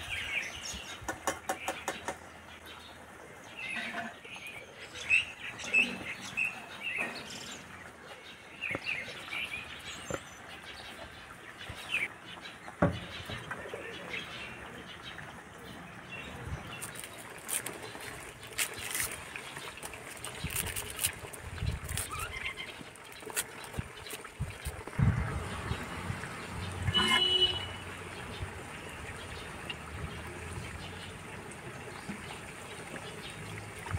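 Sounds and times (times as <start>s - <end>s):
small birds chirping: 0.0s - 24.9s
onion skin crackling: 16.8s - 24.9s.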